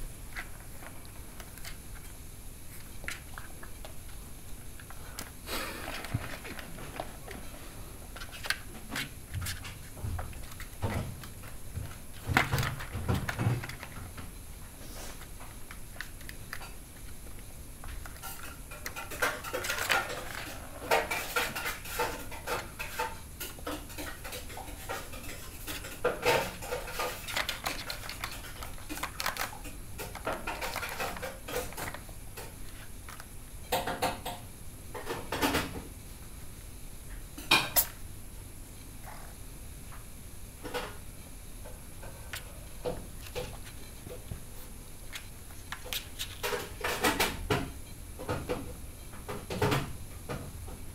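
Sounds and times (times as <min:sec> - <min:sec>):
plastic toy rattling: 0:26.4 - 0:32.0.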